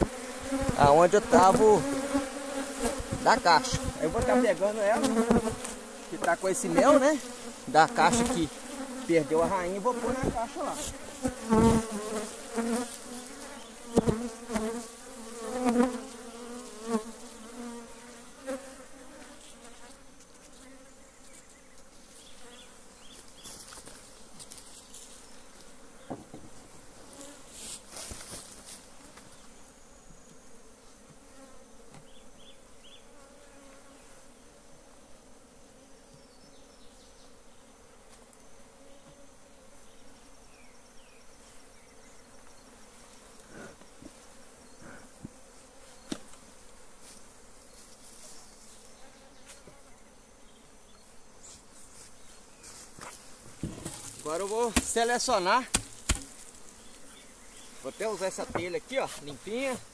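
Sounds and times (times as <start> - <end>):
bees buzzing: 0.0 - 59.9
wooden hive boxes knocking: 2.8 - 8.4, 13.8 - 14.8, 26.0 - 26.6, 53.4 - 56.5, 58.0 - 59.8.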